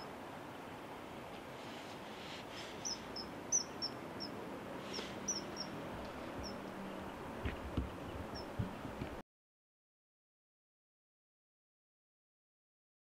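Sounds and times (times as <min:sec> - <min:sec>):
background hiss: 0:00.0 - 0:09.2
kingfishers calling: 0:02.6 - 0:08.9
low thumps: 0:06.0 - 0:09.2.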